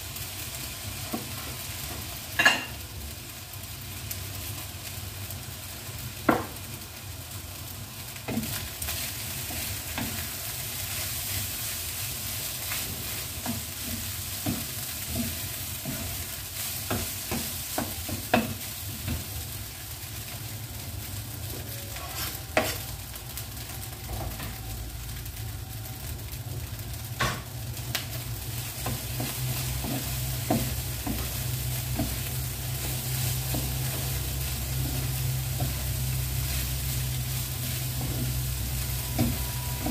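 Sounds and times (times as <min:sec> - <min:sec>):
rice sizzling in a wok: 0:00.0 - 0:39.9
wooden spatula knocking a pan: 0:06.2 - 0:06.6, 0:13.4 - 0:16.2, 0:16.8 - 0:19.3, 0:28.8 - 0:35.8, 0:37.9 - 0:39.9.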